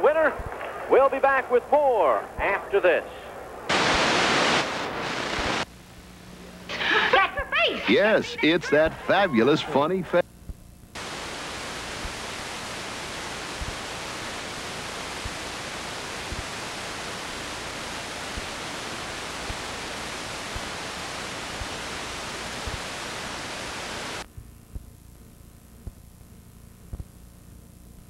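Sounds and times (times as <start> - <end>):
static hiss: 0.0 - 28.0
low hum: 10.0 - 28.0.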